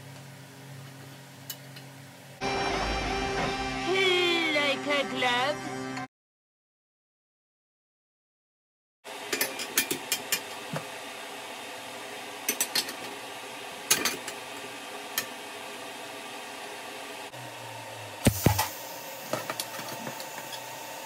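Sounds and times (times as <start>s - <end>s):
workshop noise: 2.4s - 5.0s, 18.2s - 20.9s
low hum: 2.4s - 6.0s.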